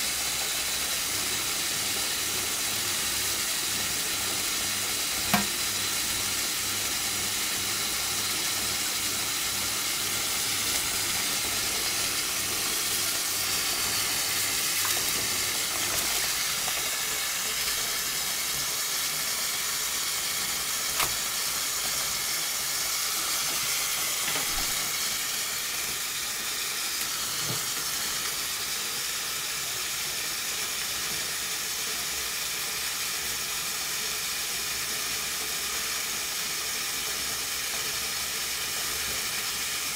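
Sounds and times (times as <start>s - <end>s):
tap running into steel sink: 5.2s - 5.8s, 14.6s - 17.0s, 20.9s - 22.0s, 24.2s - 24.9s, 27.4s - 27.9s.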